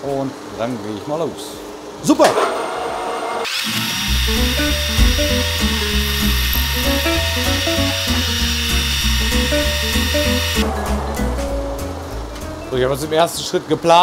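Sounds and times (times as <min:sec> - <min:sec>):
metal lathe high-pitched whine: 0:03.4 - 0:10.6.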